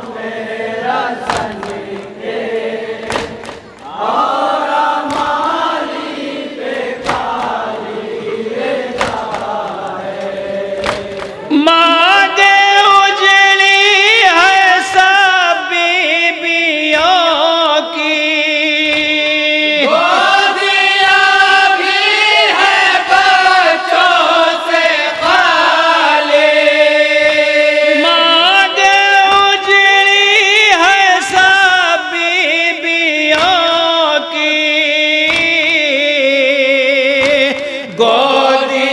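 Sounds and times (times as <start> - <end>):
men chanting in a group: 0.0 - 38.9
hands thudding on chests: 3.0 - 3.8, 7.0 - 7.6, 8.9 - 9.6, 10.2 - 11.4, 35.2 - 35.8, 37.2 - 37.7.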